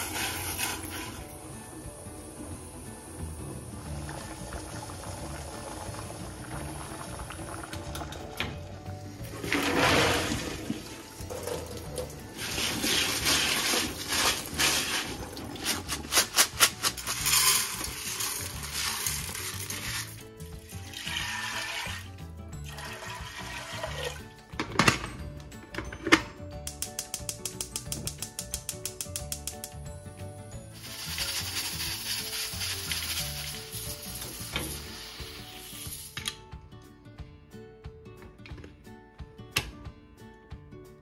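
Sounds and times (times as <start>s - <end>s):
beans rattling into pot: 0.0s - 1.3s, 12.4s - 20.2s, 30.8s - 36.1s
background music: 0.0s - 41.0s.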